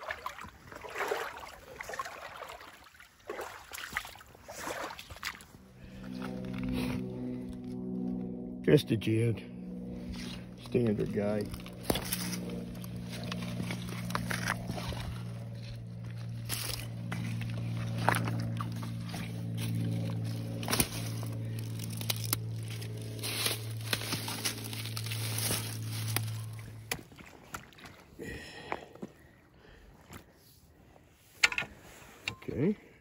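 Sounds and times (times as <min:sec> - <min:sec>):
water sloshing: 0:00.0 - 0:06.4, 0:11.6 - 0:28.1
low hum: 0:00.0 - 0:33.0
stones clacking and scraping: 0:11.4 - 0:18.6.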